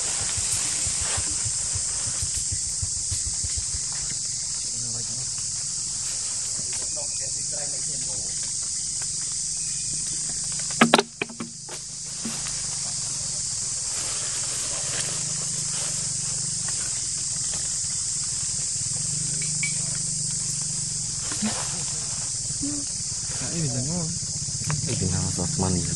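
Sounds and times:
insect chorus droning: 0.0s - 25.9s
sharp knocks: 10.8s - 12.5s.

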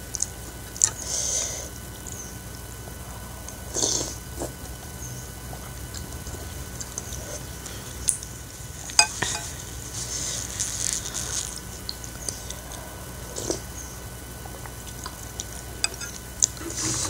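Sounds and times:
metal spoon clicking on ceramic bowl: 9.0s - 9.5s
spoon scooping soup: 9.0s - 9.6s, 15.8s - 16.2s.

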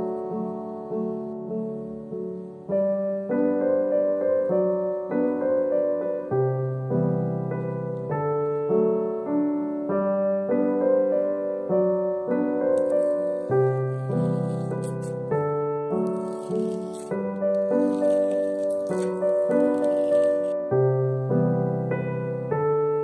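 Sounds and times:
piano music: 0.0s - 23.0s
masking tape peeled off paper: 12.8s - 20.6s.

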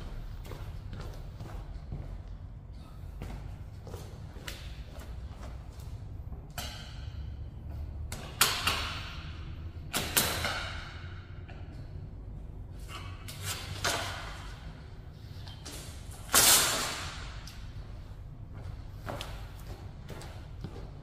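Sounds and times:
low steady hum: 0.0s - 21.0s
metal strip slapping floor: 9.9s - 11.2s, 12.9s - 14.7s, 15.4s - 17.6s.

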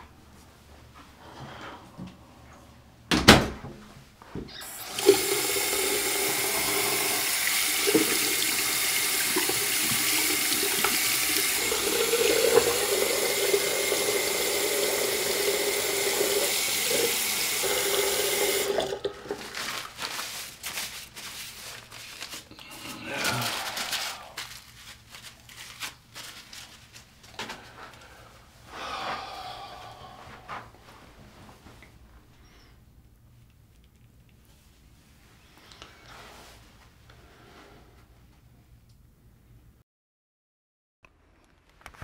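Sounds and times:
tap water running into sink: 4.6s - 19.4s
tissue rustling: 19.2s - 27.4s.

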